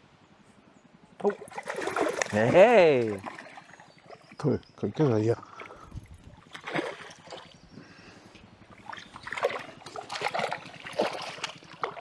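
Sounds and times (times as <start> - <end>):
fish splashing in water: 1.2 - 4.3, 5.6 - 7.6, 8.7 - 12.0.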